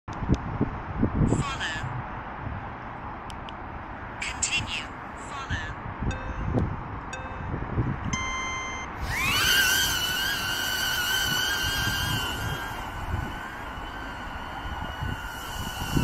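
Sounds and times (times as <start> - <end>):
drone propellers whining: 7.2 - 16.0
short beep: 8.1 - 8.9.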